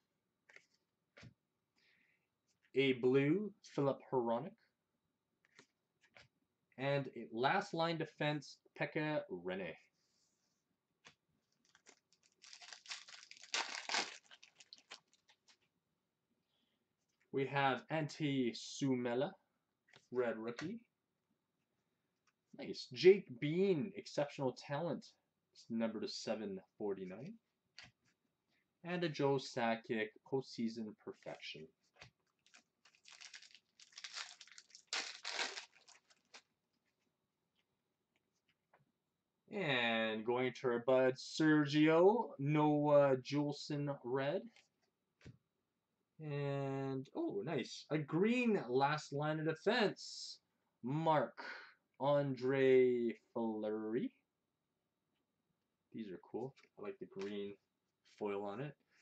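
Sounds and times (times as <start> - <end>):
foil wrapper crinkling: 11.6 - 15.6, 32.3 - 36.5.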